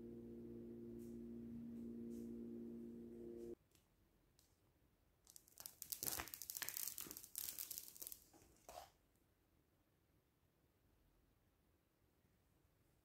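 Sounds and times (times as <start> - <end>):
plastic sheet crinkling: 5.3 - 8.9.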